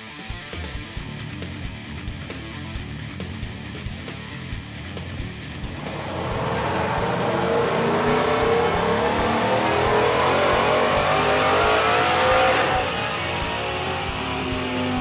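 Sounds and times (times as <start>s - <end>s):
truck engine revving on dyno: 5.6s - 15.0s
dyno rollers coasting down: 5.8s - 15.0s.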